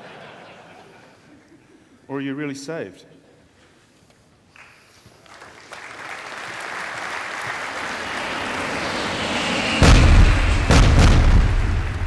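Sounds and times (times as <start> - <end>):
rush of noise: 6.5 - 12.0
deep booms: 8.4 - 12.0.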